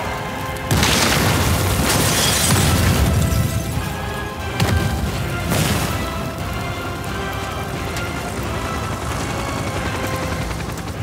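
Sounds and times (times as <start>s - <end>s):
dramatic background music: 0.0s - 11.0s
explosion blast and rumble: 0.6s - 6.5s.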